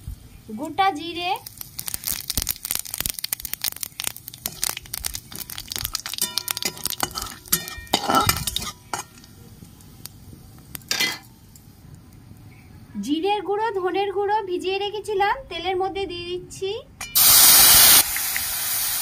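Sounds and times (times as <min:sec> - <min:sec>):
seeds crackling in hot oil: 0:00.0 - 0:13.2, 0:17.2 - 0:19.0
metal spatula scraping a pan: 0:06.2 - 0:09.2.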